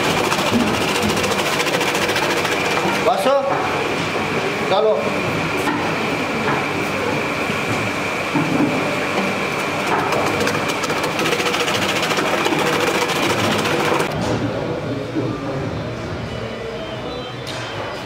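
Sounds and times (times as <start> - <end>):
slicing machine motor whine: 10.0 - 14.2.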